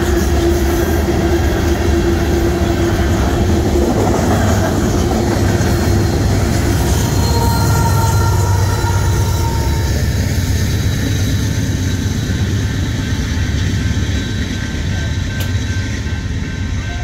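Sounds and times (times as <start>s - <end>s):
freight train rumbling: 0.0s - 17.0s
crossing bell ringing: 5.9s - 12.9s, 14.5s - 17.0s.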